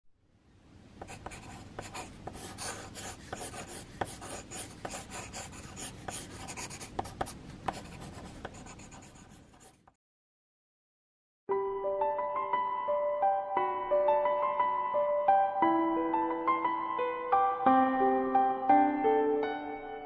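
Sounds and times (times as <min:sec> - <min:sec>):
pencil lead ticking on paper: 0:01.0 - 0:10.0
pencil scratching on paper: 0:01.0 - 0:10.0.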